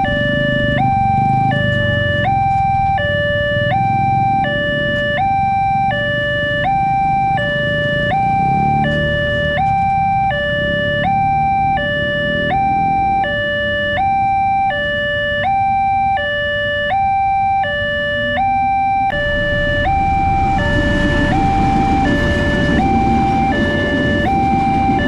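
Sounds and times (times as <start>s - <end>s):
two-tone crossing alarm: 0.0s - 25.0s
train rumbling past: 19.2s - 25.0s.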